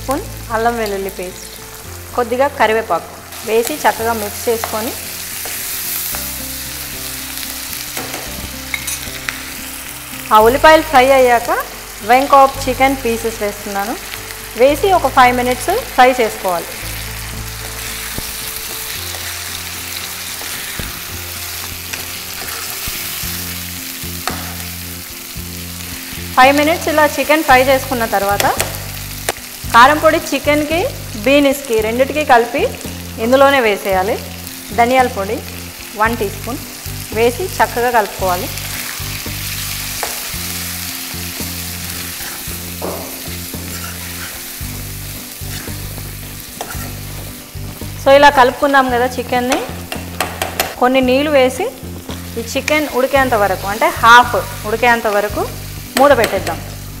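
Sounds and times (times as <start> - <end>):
chicken sizzling in hot oil: 0.0 - 57.0
spatula scraping a pan: 21.6 - 23.3, 41.9 - 44.6, 45.3 - 47.8
spatula tapping pan: 49.5 - 50.8.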